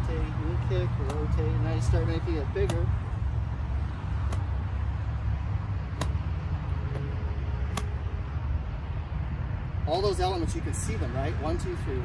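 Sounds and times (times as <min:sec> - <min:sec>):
golf club ticking on turf mat: 0:02.6 - 0:03.0.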